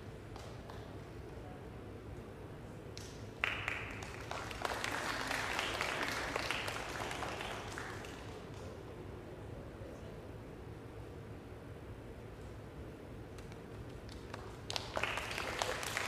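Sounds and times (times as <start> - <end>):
applause: 3.0 - 8.8, 13.4 - 16.0.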